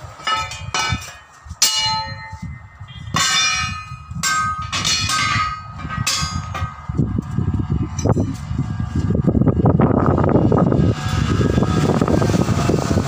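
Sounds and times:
metal wheel rim clanging: 0.0s - 6.9s.

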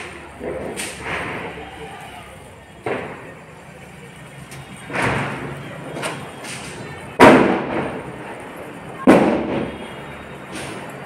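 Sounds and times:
firecracker bangs: 0.0s - 2.0s, 4.8s - 8.3s, 9.0s - 11.0s.

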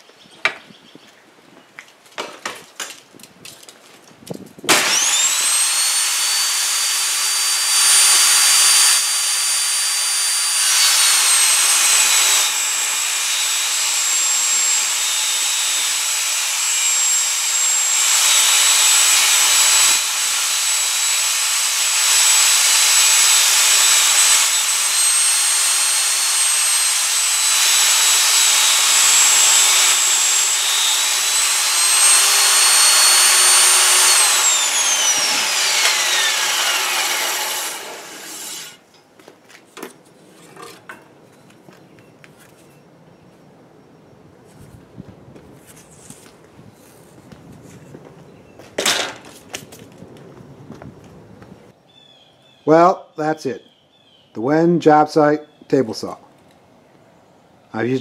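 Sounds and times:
saw cutting wood: 4.7s - 38.8s
table saw motor whining: 4.7s - 38.8s.

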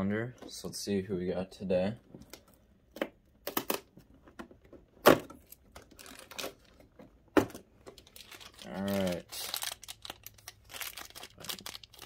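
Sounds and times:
plastic wrapper rustling: 5.4s - 6.8s, 7.9s - 12.0s.

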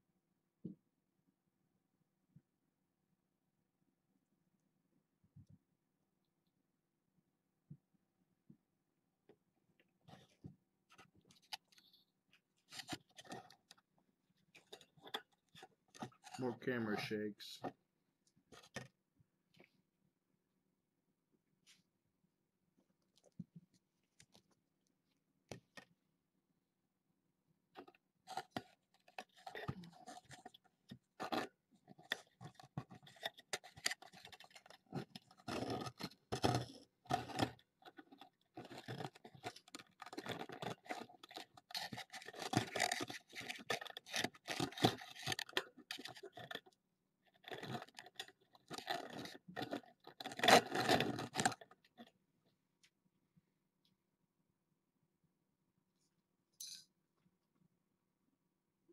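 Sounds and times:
kitten claws scratching carpet: 27.8s - 46.7s.

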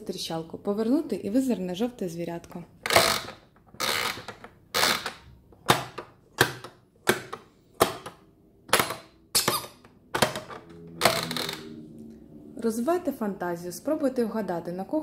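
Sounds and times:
plastic toy doors clacking shut: 2.8s - 11.2s.

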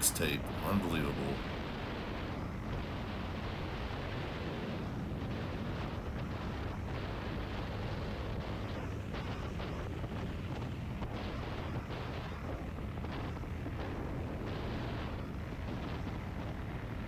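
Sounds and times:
dirt bike engine and road rumble: 0.0s - 17.0s
wind buffeting microphone: 0.0s - 17.0s.

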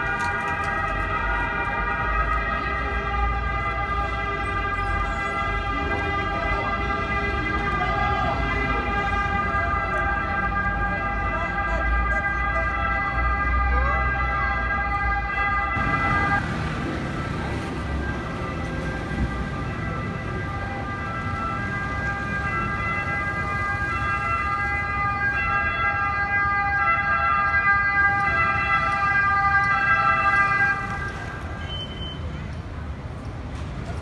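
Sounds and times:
fire engine siren: 0.0s - 32.3s
heavy vehicle engine rumbling: 15.5s - 25.4s.

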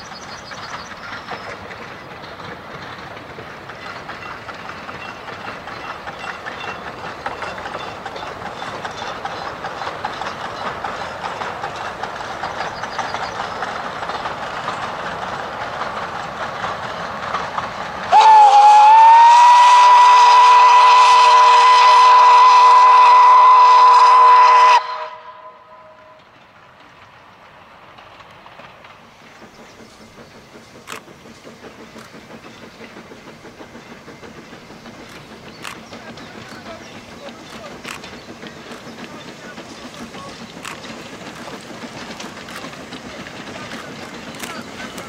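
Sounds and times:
steam train running: 0.0s - 45.0s
steam whistle chord: 18.1s - 26.2s.

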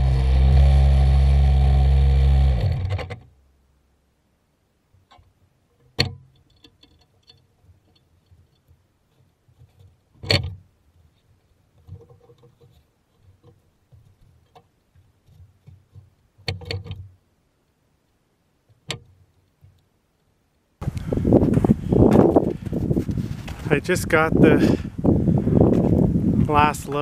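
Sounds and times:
scuffing and shuffling: 20.8s - 23.9s.

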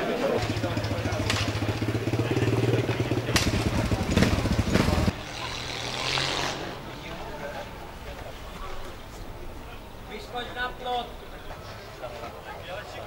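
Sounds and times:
motorcycle engine idling: 0.4s - 5.2s.

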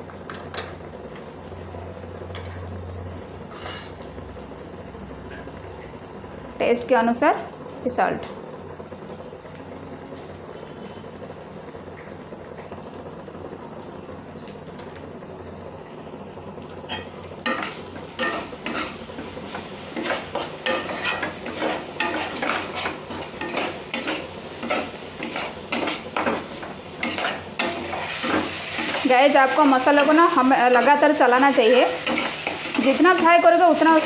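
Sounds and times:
metal spatula scraping pan: 3.5s - 4.0s, 16.9s - 19.3s, 19.9s - 34.0s
onions sizzling in oil: 16.4s - 34.0s.

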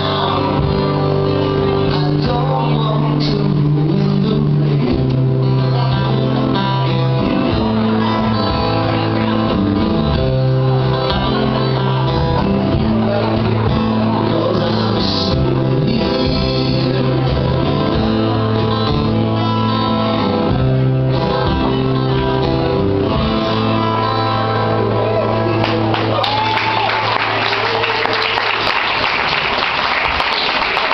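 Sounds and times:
person singing: 0.0s - 25.1s
live band playing: 0.0s - 30.9s
audience applause and cheering: 24.5s - 30.9s.

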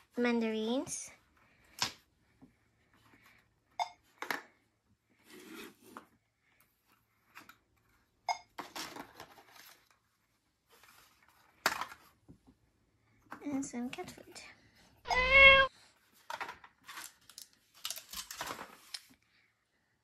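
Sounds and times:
light knocks and clicks of toys: 10.7s - 12.6s, 16.1s - 19.2s.

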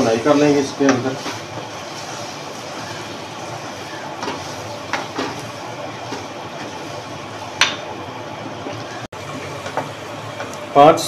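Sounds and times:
wooden spoon scraping a pan: 0.0s - 7.0s
food sizzling in oil: 0.0s - 10.8s.

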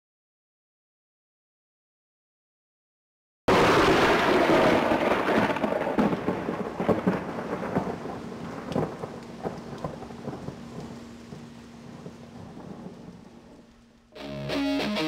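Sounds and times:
thunder rumbling with crackles: 3.5s - 14.1s.

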